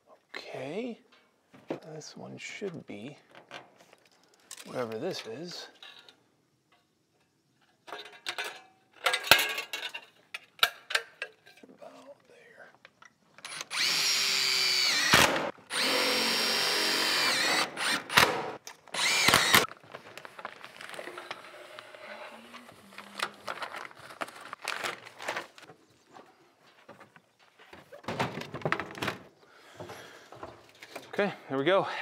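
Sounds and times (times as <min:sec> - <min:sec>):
power drill driving screws: 0:13.4 - 0:19.7.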